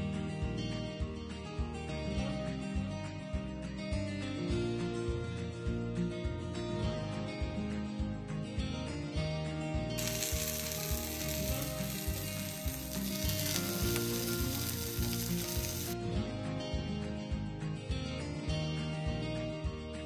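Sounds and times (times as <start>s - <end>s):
background music: 0.0s - 20.0s
sausages sizzling in a pan: 10.0s - 16.0s.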